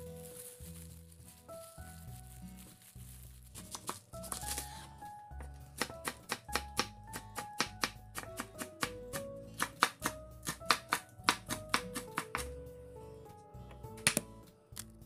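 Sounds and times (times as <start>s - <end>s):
background music: 0.0s - 15.0s
knife chopping on wooden board: 5.8s - 12.5s.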